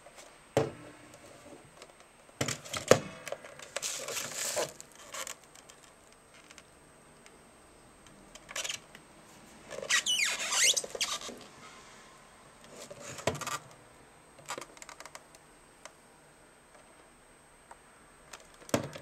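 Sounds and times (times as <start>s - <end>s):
squeaky rubbing of plastic: 9.7s - 11.4s.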